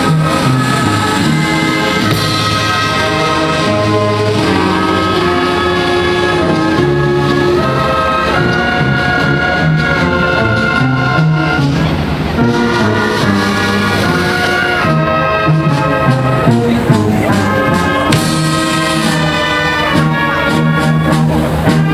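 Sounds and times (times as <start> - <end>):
brass band music: 0.0 - 21.9.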